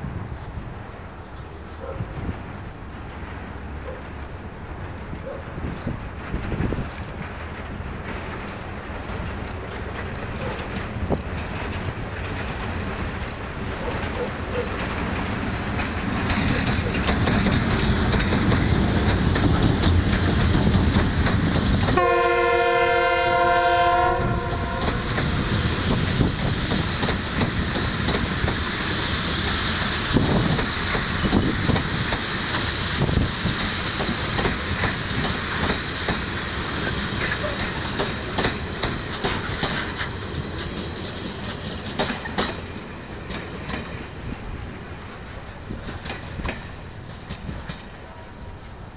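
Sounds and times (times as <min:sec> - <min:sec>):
train wheels clicking on rails: 0:01.3 - 0:48.9
train horn: 0:21.9 - 0:25.2.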